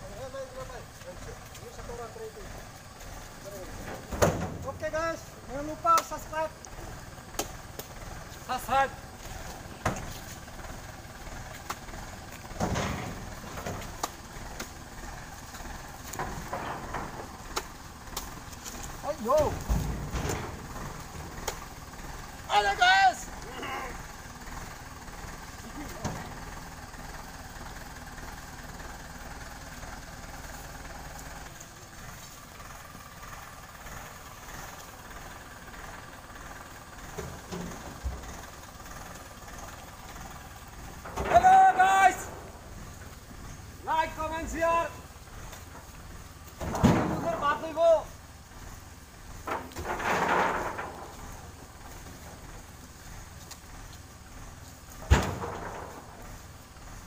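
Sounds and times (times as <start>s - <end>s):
tractor engine rumbling: 0.0s - 57.0s
heavy thud: 3.8s - 5.0s, 55.0s - 56.2s.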